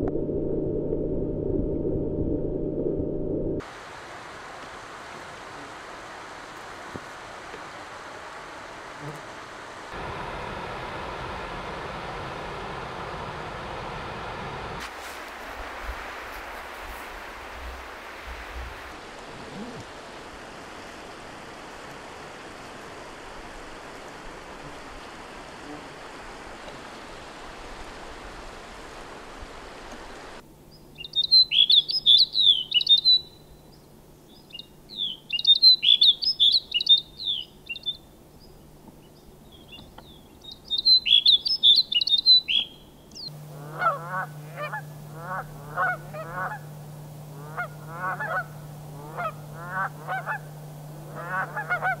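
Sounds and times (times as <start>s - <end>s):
low steady hum: 0.0s - 3.7s, 42.6s - 52.0s
steady rushing noise: 0.0s - 19.3s, 43.3s - 52.0s
small bird chirping: 30.9s - 46.7s
geese honking: 43.3s - 52.0s.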